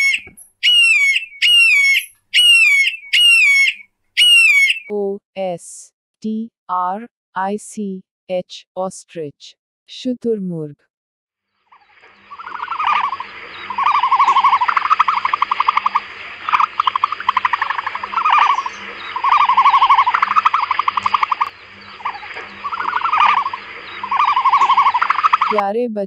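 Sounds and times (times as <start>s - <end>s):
emu pulsed calls: 0.0s - 4.9s, 11.8s - 25.6s.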